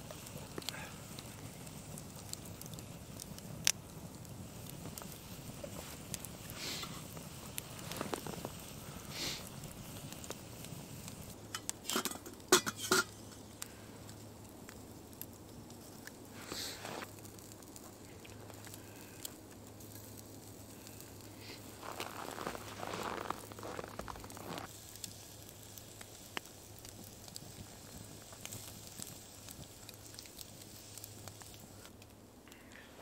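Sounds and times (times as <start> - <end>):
campfire crackling: 0.0 - 33.0
footsteps in snow: 21.6 - 24.7.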